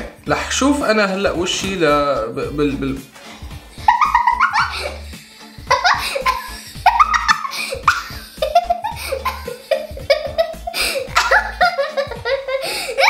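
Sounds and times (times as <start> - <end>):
background music: 0.0 - 13.0
young girl laughing: 3.7 - 13.0.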